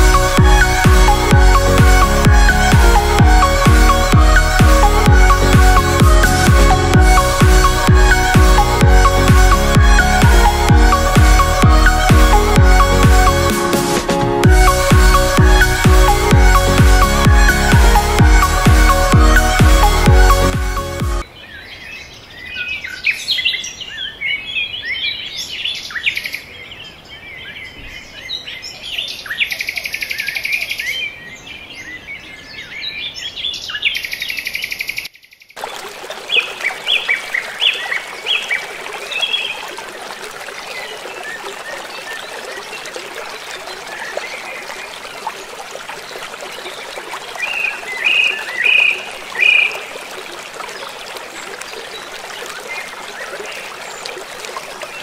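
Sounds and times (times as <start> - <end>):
river rushing: 0.0 - 21.3, 35.6 - 55.0.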